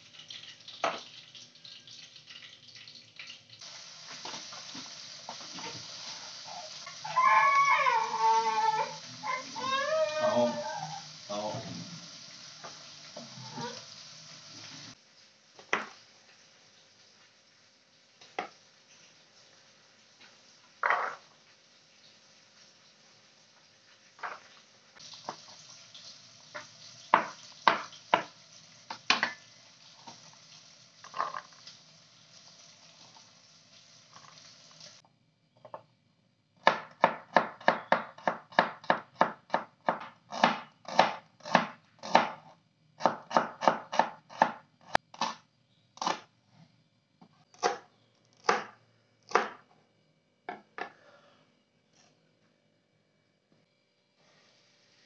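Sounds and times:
knife chopping on plastic board: 0:43.0 - 0:44.6, 0:48.4 - 0:49.6.

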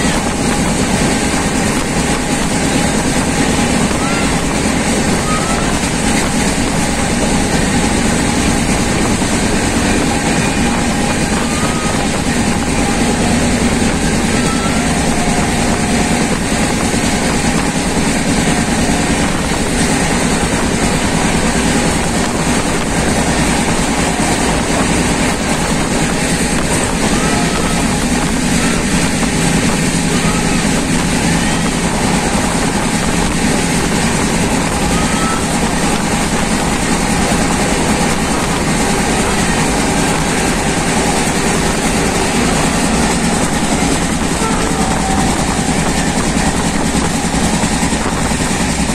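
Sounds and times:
rushing wind: 0:00.0 - 0:48.9
wheels rumbling on rail: 0:00.0 - 0:48.9.

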